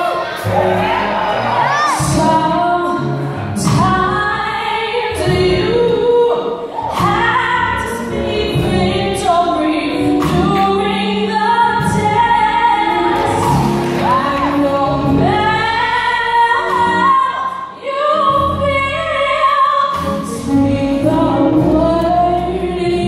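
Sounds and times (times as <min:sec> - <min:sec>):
woman singing with vibrato: 0:01.8 - 0:23.0.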